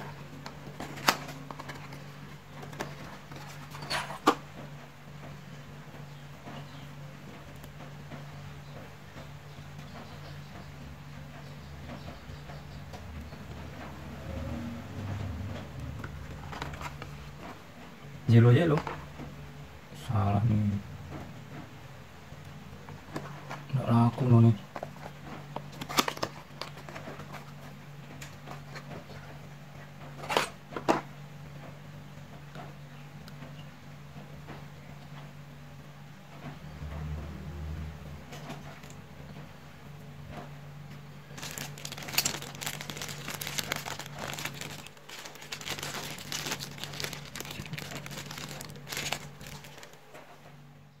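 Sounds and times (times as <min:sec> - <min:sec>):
plastic bag crinkling: 0:41.3 - 0:50.2
scraping rustles: 0:41.3 - 0:50.5.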